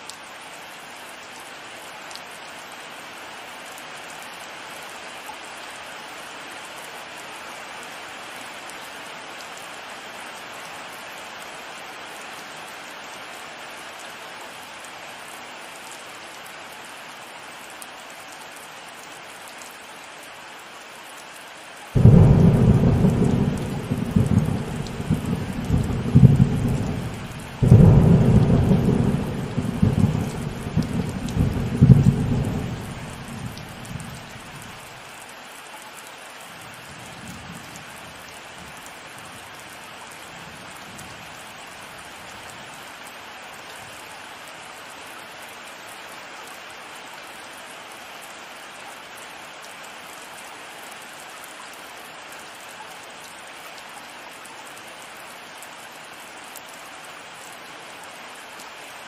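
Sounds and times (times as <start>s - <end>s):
heavy rain: 0.0s - 59.0s
thunder rumbling: 22.0s - 34.4s.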